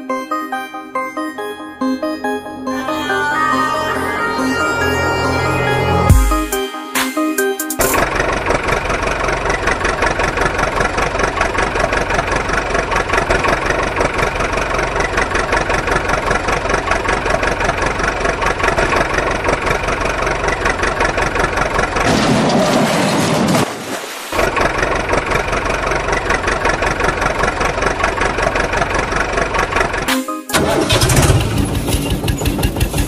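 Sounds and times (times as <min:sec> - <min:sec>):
engine idling: 0:07.8 - 0:22.1, 0:24.4 - 0:33.0.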